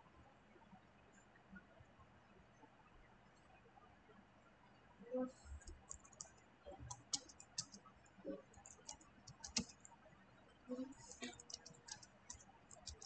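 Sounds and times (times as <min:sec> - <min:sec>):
computer keyboard typing: 0:05.6 - 0:09.9, 0:11.0 - 0:13.0.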